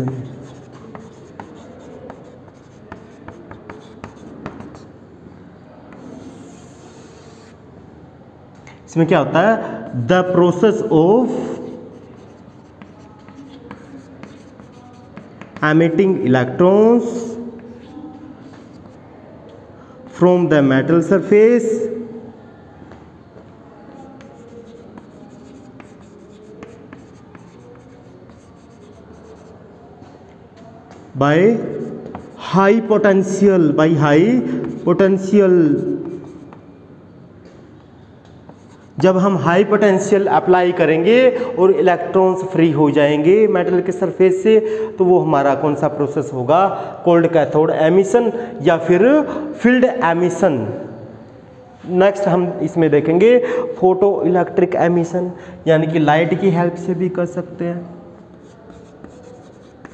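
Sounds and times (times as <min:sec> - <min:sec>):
chalk tapping on board: 0:00.0 - 0:04.9, 0:05.9 - 0:07.6, 0:11.3 - 0:15.9, 0:23.9 - 0:29.6, 0:31.7 - 0:32.6, 0:34.6 - 0:36.7, 0:38.2 - 0:39.0, 0:58.3 - 0:59.9
chalk scratching on chalkboard: 0:00.0 - 0:05.0, 0:05.8 - 0:07.6, 0:09.8 - 0:16.0, 0:17.0 - 0:19.2, 0:23.8 - 0:29.7, 0:31.5 - 0:33.5, 0:34.6 - 0:36.7, 0:38.4 - 0:39.3, 0:58.2 - 0:59.9.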